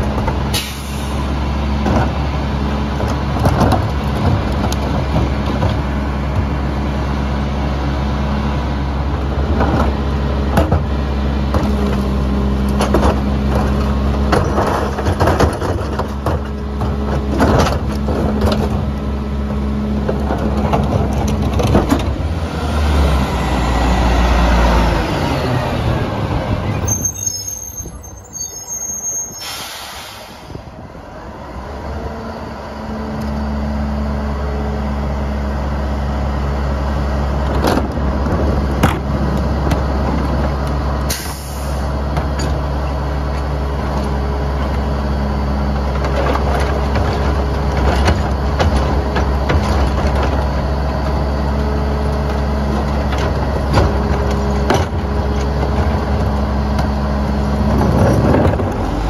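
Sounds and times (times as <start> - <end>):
garbage truck diesel engine: 0.0 - 59.0
air brake hissing: 0.5 - 1.2, 29.2 - 30.7, 41.1 - 41.9.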